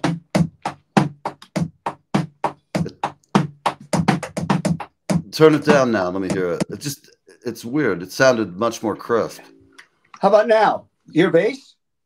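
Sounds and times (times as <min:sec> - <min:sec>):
drum hits: 0:00.0 - 0:07.0.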